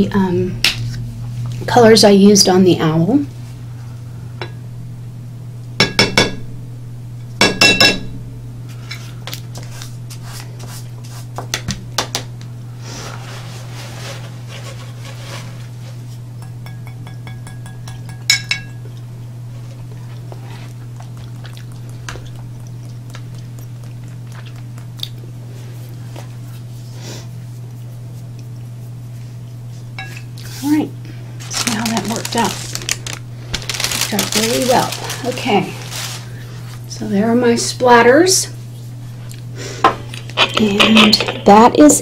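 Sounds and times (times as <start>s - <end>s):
steady low hum: 0.0s - 42.0s
glass clinks: 16.4s - 18.8s.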